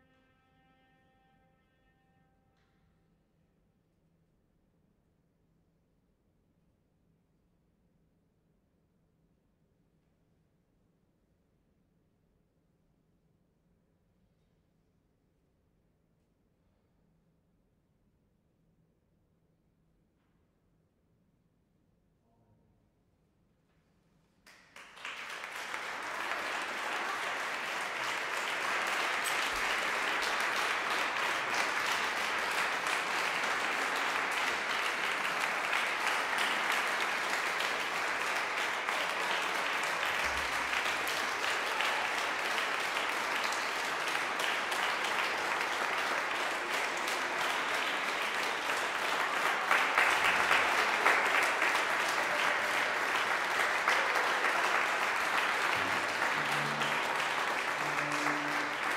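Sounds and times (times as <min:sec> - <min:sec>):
audience applause: 0:24.5 - 0:58.9.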